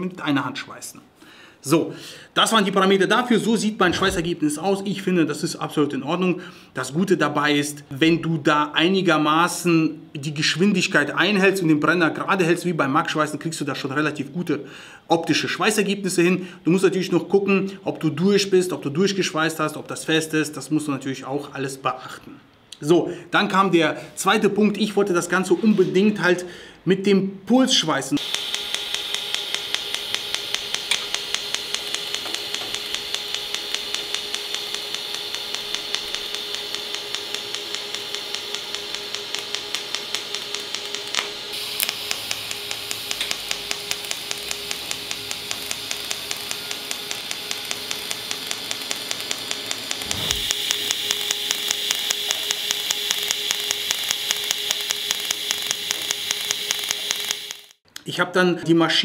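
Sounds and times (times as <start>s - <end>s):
welding arc hissing and ticking: 28.2s - 57.8s.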